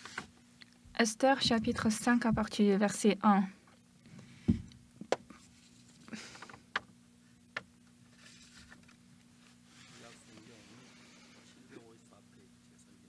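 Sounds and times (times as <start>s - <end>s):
faint steady hum: 0.0s - 13.0s
pages turning: 8.1s - 9.0s.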